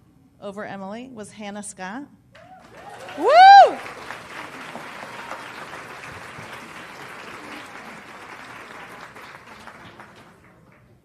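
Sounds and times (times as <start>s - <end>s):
audience applause: 2.4s - 10.9s.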